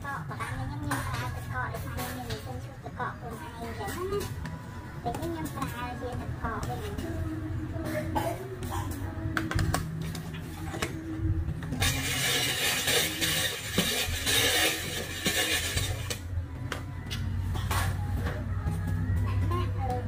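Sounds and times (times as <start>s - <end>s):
ice shaver grinding ice: 11.8s - 16.2s.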